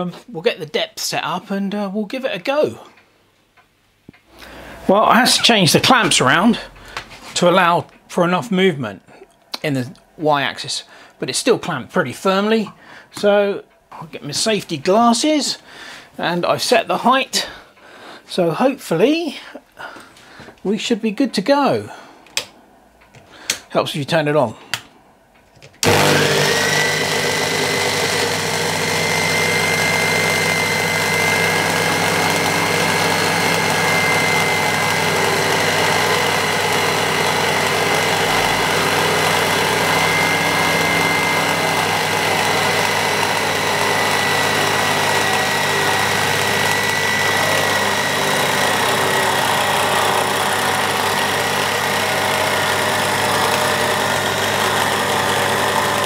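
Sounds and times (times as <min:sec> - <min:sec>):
milling machine cutting wood: 0:25.8 - 0:56.0.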